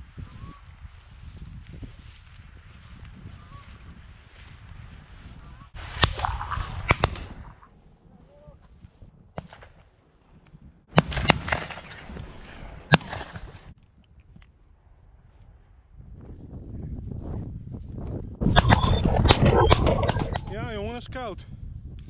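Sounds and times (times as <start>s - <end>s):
shotgun shots: 10.9s - 12.2s, 12.8s - 13.6s, 18.5s - 20.6s.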